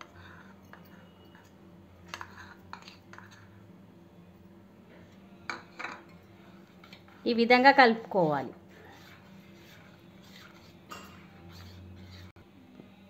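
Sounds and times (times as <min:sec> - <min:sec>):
spoon and bowls clinking: 0:00.0 - 0:03.5, 0:05.5 - 0:07.0, 0:10.7 - 0:11.7.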